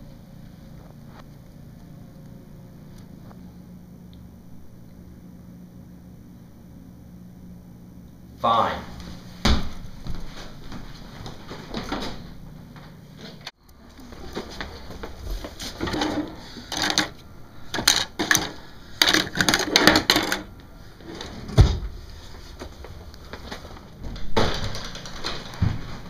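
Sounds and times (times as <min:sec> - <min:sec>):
drawers and cabinets clattering: 0:15.6 - 0:21.9, 0:24.0 - 0:26.0.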